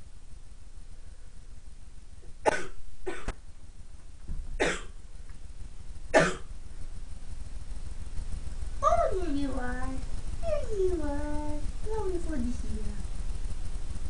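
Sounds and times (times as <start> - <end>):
person coughing: 2.5 - 3.3, 4.6 - 5.0, 6.2 - 6.5.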